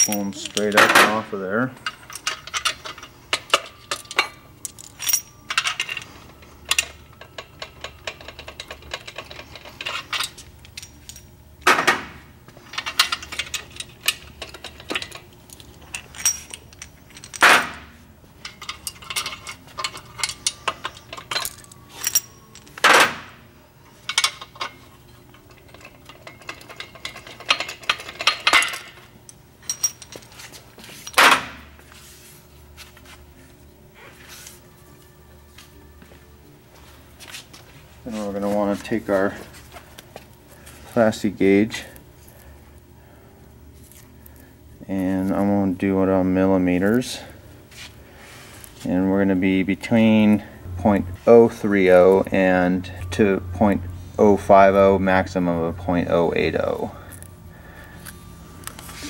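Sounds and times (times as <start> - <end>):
metal parts clinking and rattling: 0.0 - 12.0, 12.6 - 23.4, 24.0 - 31.6.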